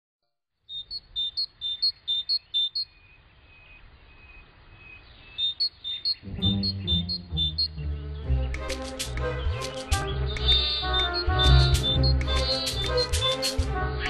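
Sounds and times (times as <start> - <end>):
bird two-note chirp: 5.4 - 7.8
low music: 6.2 - 14.0.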